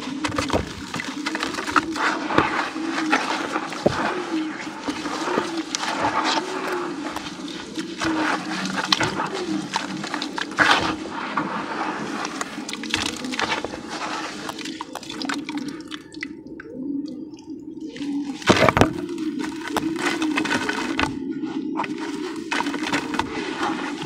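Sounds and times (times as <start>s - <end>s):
feet squishing in wet sand: 0.0s - 16.2s
wet sand crumbling: 0.0s - 16.3s, 18.0s - 24.0s
water splashing: 0.0s - 16.6s.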